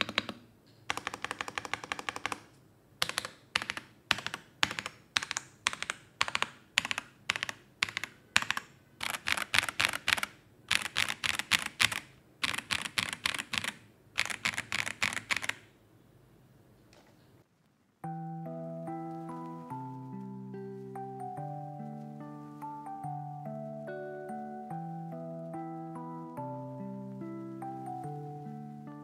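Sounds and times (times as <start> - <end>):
mechanical keyboard typing: 0.0 - 15.7.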